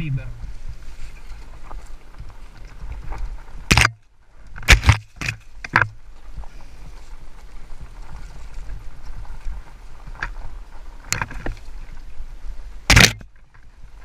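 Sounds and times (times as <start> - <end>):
wind on microphone: 0.0 - 14.0
bike knocks and rattles: 3.7 - 4.0, 4.6 - 6.6, 12.9 - 13.7.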